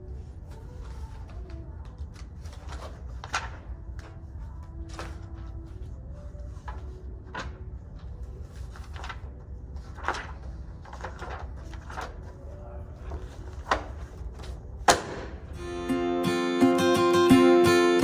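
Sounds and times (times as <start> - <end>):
books and papers rustling: 0.0 - 14.9
low room hum: 0.0 - 15.8.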